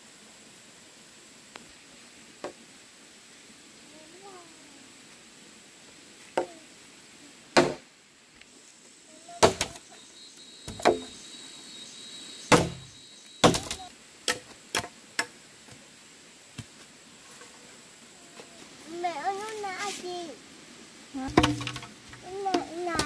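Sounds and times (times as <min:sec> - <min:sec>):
sharp knocks: 0:07.6 - 0:07.8, 0:09.4 - 0:09.8, 0:10.7 - 0:11.1, 0:12.5 - 0:15.3, 0:21.3 - 0:23.0.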